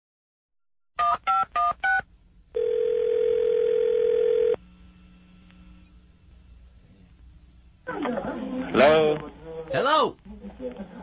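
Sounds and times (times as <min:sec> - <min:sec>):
telephone ringing tone: 0:01.0 - 0:04.6.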